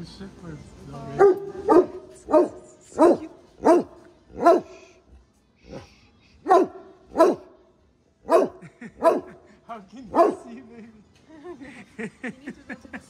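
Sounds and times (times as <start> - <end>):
large dog barking: 1.2 - 4.8, 6.5 - 7.5, 8.2 - 9.4, 10.1 - 10.6.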